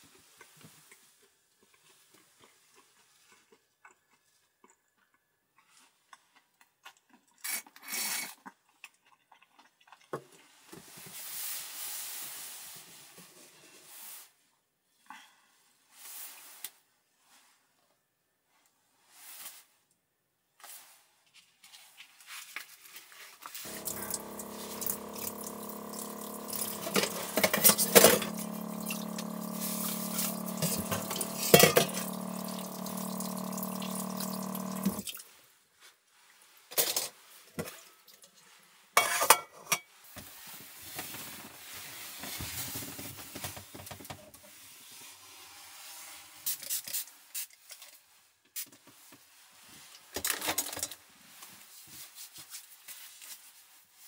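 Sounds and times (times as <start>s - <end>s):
steady hum: 23.7s - 35.1s
water running from a sink tap: 23.7s - 35.1s
clatters in the sink: 50.1s - 51.0s.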